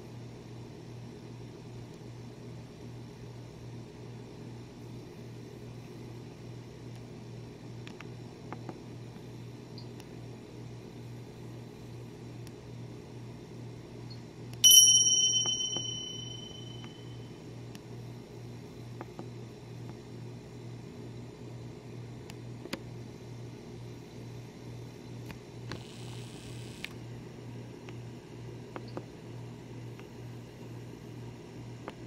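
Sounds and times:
bell-like ding: 0:14.6 - 0:17.2.

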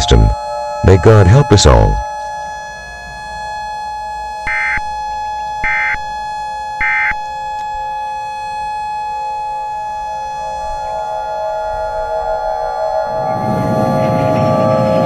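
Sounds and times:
steady electronic tone: 0:00.0 - 0:15.0
screechy data bursts: 0:04.5 - 0:08.2.

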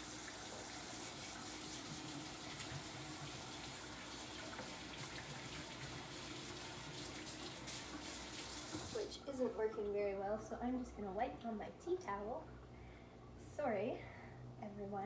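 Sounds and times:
tap water running into sink: 0:00.0 - 0:09.1.

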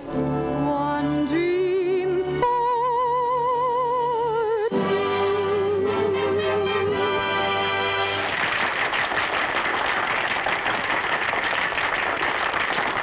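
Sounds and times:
audience applause: 0:07.8 - 0:13.0.

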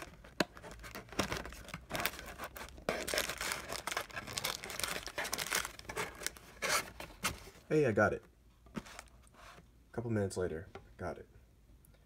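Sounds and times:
card packs crinkling: 0:00.0 - 0:07.6.

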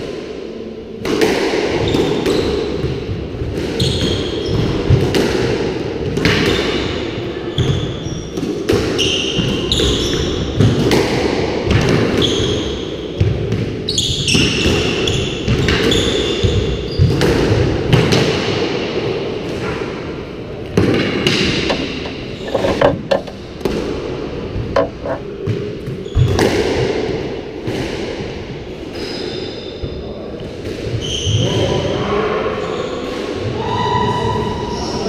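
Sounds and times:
squash ball cracking off rackets: 0:20.8 - 0:24.0
shoes squeaking on wooden floor: 0:21.6 - 0:23.4, 0:24.7 - 0:25.2.

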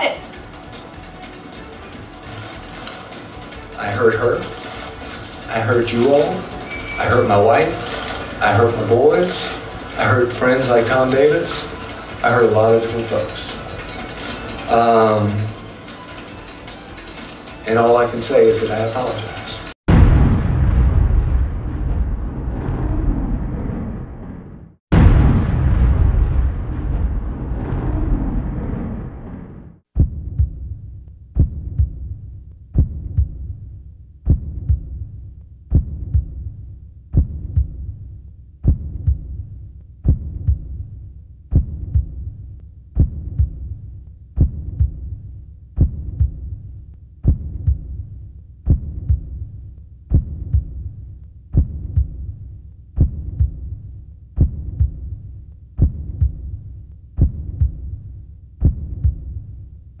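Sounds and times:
low hum: 0:00.2 - 0:16.2, 0:19.9 - 0:33.7
heartbeat double thud: 0:29.9 - 0:30.8, 0:31.4 - 0:32.2, 0:32.8 - 0:33.6, 0:34.2 - 0:38.0, 0:38.6 - 0:40.9, 0:41.5 - 0:42.3, 0:43.0 - 0:43.8, 0:44.4 - 0:45.2, 0:45.8 - 0:46.6, 0:47.2 - 0:48.1, 0:48.7 - 0:49.5, 0:50.1 - 0:50.9, 0:51.5 - 0:52.3, 0:53.0 - 0:53.8, 0:54.4 - 0:55.2, 0:55.8 - 0:56.6, 0:57.2 - 0:58.0, 0:58.6 - 0:59.4.

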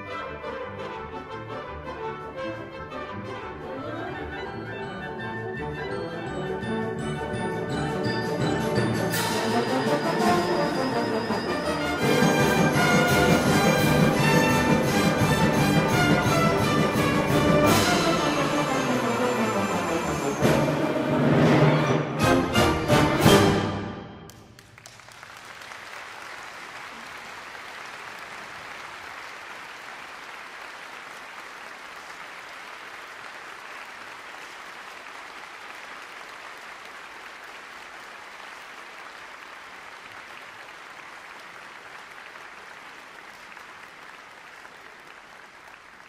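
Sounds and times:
audience applauding: 0:24.3 - 0:46.0.

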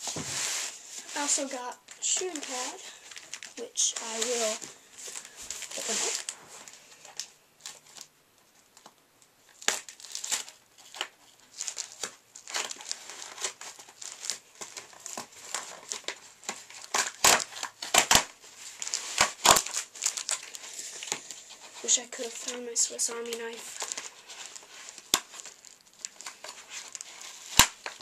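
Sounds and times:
wrap crinkling and tearing: 0:01.0 - 0:08.1, 0:09.5 - 0:28.0
scissors cutting packaging: 0:09.6 - 0:21.4, 0:22.2 - 0:28.0.

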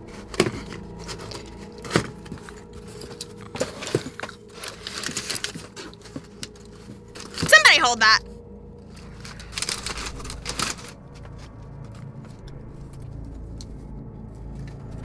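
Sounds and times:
cardboard snapping and scraping: 0:00.2 - 0:07.5
packing paper rustling: 0:00.4 - 0:07.7, 0:09.1 - 0:10.9.

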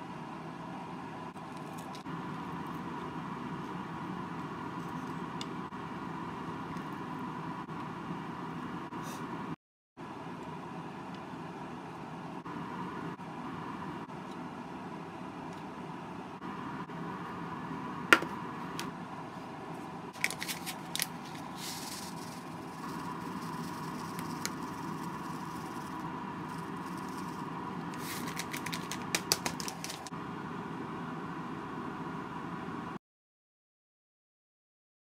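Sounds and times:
steady hum with high whine: 0:00.0 - 0:33.0
food packed into metal box: 0:20.2 - 0:24.4, 0:28.0 - 0:30.1.

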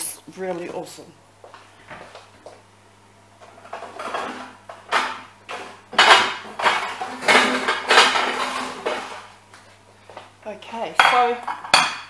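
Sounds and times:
dishes and cutlery clattering: 0:03.6 - 0:09.2, 0:11.0 - 0:12.0.

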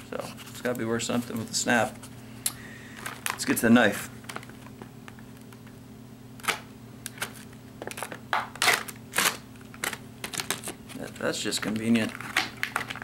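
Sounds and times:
plastic packaging crackling: 0:03.0 - 0:03.6, 0:07.1 - 0:13.0.

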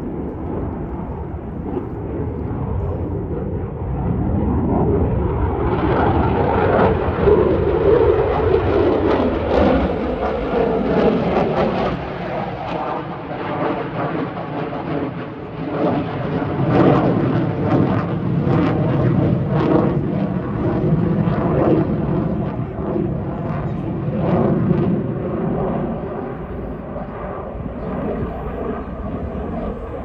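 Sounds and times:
aircraft engine roaring past: 0:00.0 - 0:30.0.

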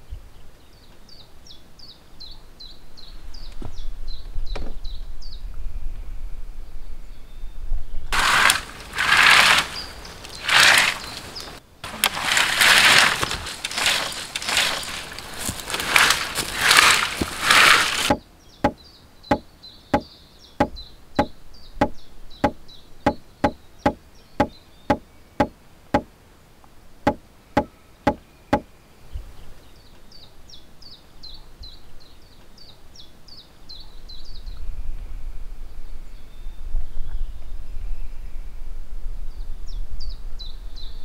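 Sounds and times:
birds chirping: 0:08.0 - 0:26.1, 0:26.9 - 0:34.5
branches crashing: 0:08.2 - 0:19.4
stake pounded into ground: 0:12.0 - 0:19.4, 0:20.0 - 0:26.1, 0:27.1 - 0:28.7.

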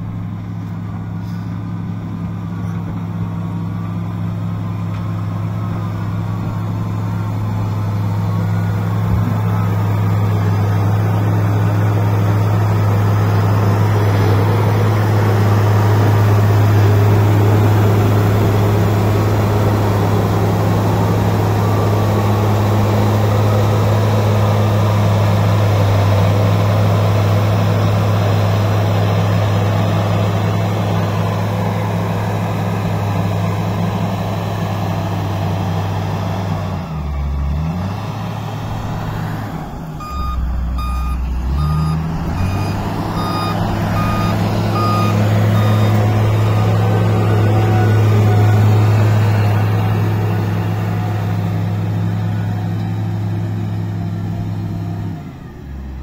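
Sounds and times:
diesel engine running hard: 0:00.0 - 0:56.0
reversing alarm beeps: 0:40.0 - 0:46.8.

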